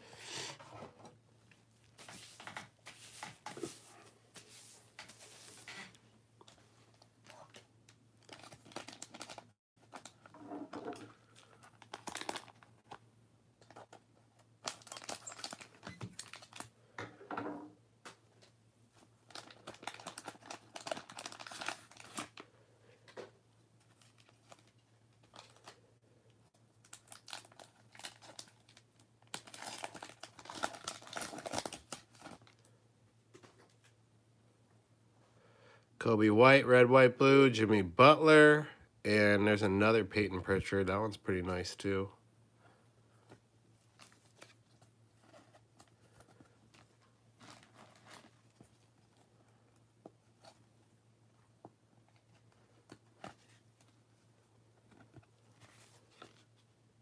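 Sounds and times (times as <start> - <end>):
plastic wrappers crinkling and tearing: 6.5 - 10.3, 11.5 - 12.8, 14.8 - 16.7, 19.2 - 22.5, 23.9 - 25.8, 26.8 - 32.7, 43.8 - 49.2.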